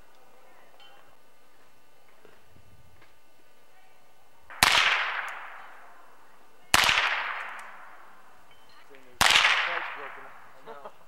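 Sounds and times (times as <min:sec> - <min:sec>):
rifle shots: 0:04.5 - 0:05.9, 0:06.7 - 0:08.2, 0:09.2 - 0:10.6.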